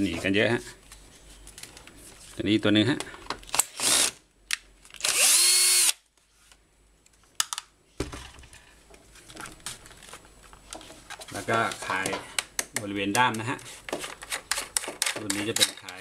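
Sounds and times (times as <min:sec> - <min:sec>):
cordless drill motor whining: 0:05.0 - 0:06.0.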